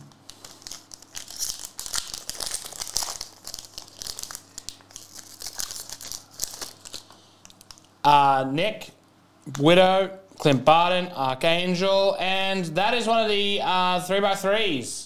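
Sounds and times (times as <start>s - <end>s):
foil wrapper tearing and crinkling: 0.2s - 7.9s.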